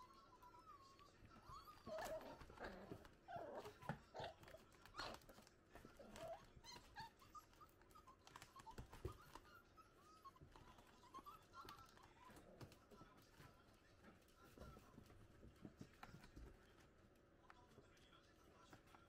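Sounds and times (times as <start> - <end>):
puppy yelps: 0.0 - 5.2
puppies whining: 0.0 - 13.0
paws scratching cardboard: 0.0 - 19.0.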